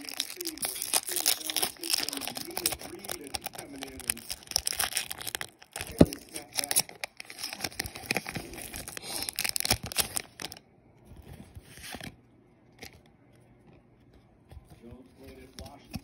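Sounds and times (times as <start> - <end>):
cards rustling: 0.0 - 10.6, 11.2 - 12.2, 14.1 - 16.0
foil wrapper crinkling and tearing: 0.0 - 10.6.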